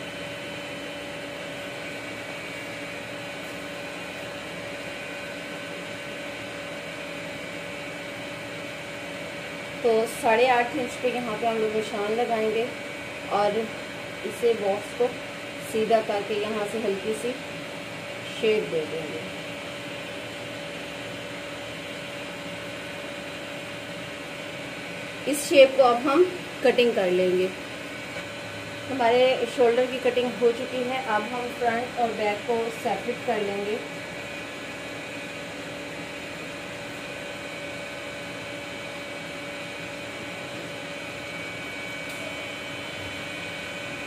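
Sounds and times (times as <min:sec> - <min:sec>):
machine hum with whine: 0:00.0 - 0:44.0.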